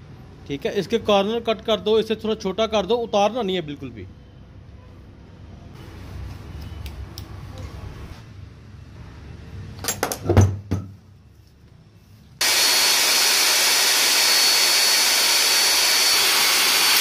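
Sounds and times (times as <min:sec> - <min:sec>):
angle grinder whining: 0:12.4 - 0:17.0.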